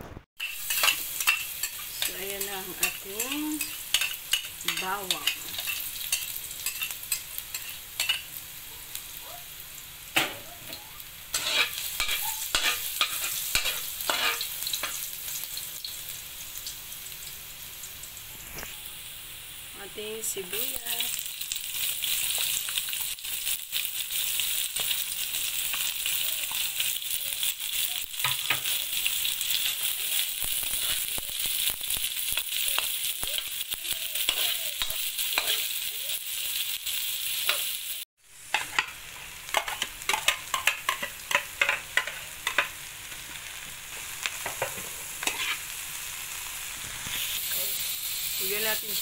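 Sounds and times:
vegetables sizzling in hot oil: 0:00.1 - 0:49.0
metal spatula scraping a wok: 0:00.4 - 0:08.3, 0:11.3 - 0:15.0, 0:38.5 - 0:42.7, 0:44.4 - 0:45.7.

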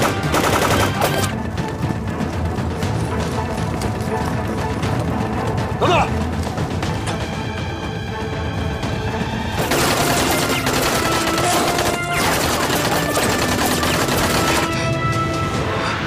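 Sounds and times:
rapid gunfire: 0:00.0 - 0:01.3, 0:09.6 - 0:14.8
background music with held notes: 0:00.0 - 0:16.0.

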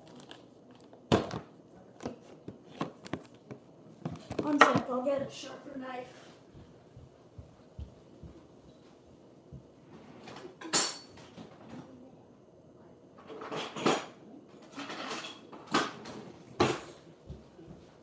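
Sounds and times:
metal cutlery clinking: 0:10.6 - 0:11.3.

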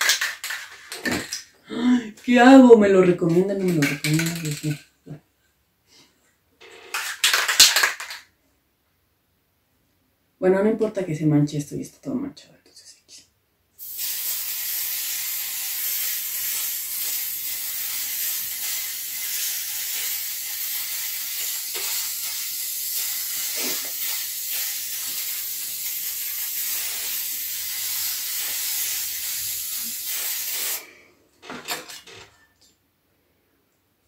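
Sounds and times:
spray paint can hissing: 0:00.0 - 0:01.4, 0:03.8 - 0:04.8, 0:13.8 - 0:30.8.

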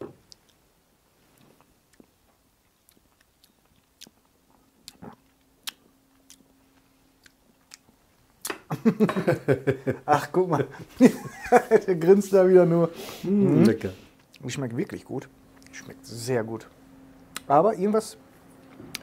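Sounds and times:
lip smacks: 0:01.4 - 0:06.5.

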